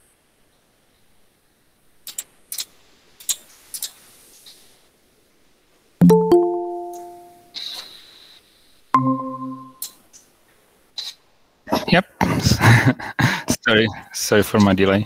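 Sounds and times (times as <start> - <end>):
faint clicks: 2.0 - 4.6
two-note electronic chime: 6.0 - 7.5, 9.0 - 9.8.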